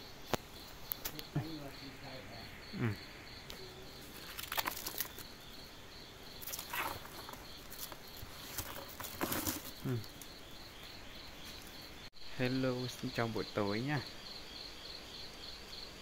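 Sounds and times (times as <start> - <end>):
crickets chirping: 0.0 - 16.0
rustling and handling noise: 4.0 - 5.3, 6.4 - 10.4.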